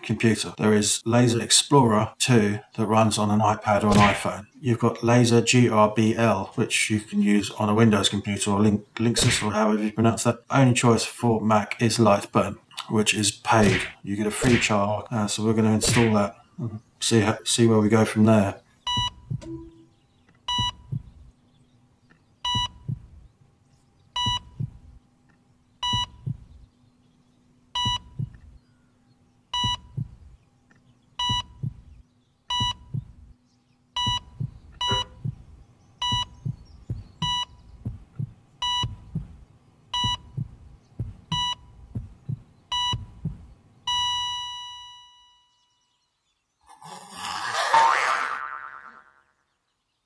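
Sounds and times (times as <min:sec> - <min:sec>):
double heartbeat thump: 0:18.9 - 0:19.9, 0:20.5 - 0:21.3, 0:22.5 - 0:23.3, 0:24.2 - 0:25.0, 0:25.8 - 0:26.7, 0:27.8 - 0:28.6, 0:29.6 - 0:30.4, 0:31.2 - 0:33.3, 0:34.0 - 0:44.2
heart monitor beep: 0:18.9 - 0:19.9, 0:20.5 - 0:21.2, 0:22.4 - 0:23.1, 0:24.2 - 0:24.8, 0:25.8 - 0:26.6, 0:27.8 - 0:28.4, 0:29.5 - 0:30.2, 0:31.2 - 0:33.2, 0:34.0 - 0:45.6
flatline tone: 0:19.0 - 0:19.9.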